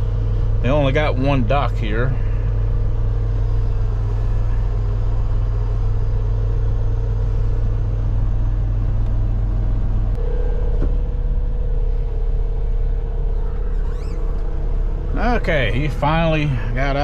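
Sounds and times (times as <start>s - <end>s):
diesel engine idling: 0.0s - 17.0s
steady high tone: 10.1s - 17.0s.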